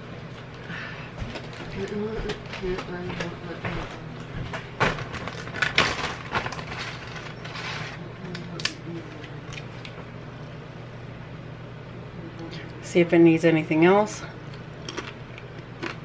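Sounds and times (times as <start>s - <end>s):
steady low hum: 0.0s - 16.0s
chip bag crinkling: 4.8s - 8.0s.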